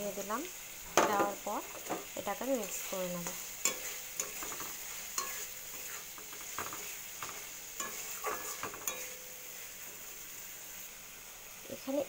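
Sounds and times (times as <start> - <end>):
oil sizzling: 0.0 - 12.0
metal spatula scraping wok: 1.2 - 10.4.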